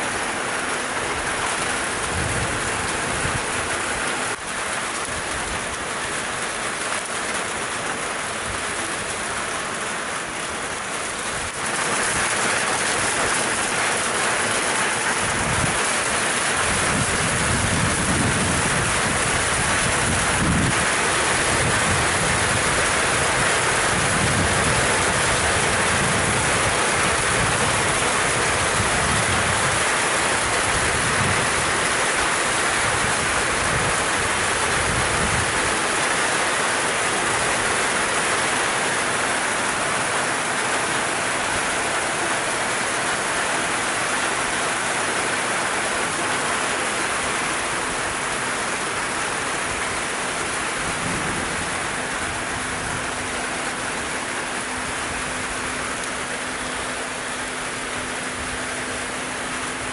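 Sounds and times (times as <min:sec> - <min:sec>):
heavy rain pouring: 0:00.0 - 0:59.9
wind buffeting microphone: 0:01.2 - 0:05.8, 0:15.1 - 0:35.8.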